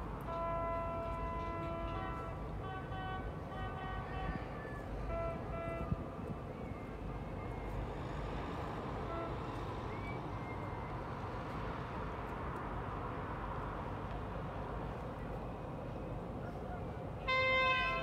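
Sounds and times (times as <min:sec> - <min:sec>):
harbour rumble and hiss: 0:00.0 - 0:18.0
faint boat horn toot: 0:00.2 - 0:06.6, 0:09.0 - 0:09.7, 0:17.2 - 0:18.0.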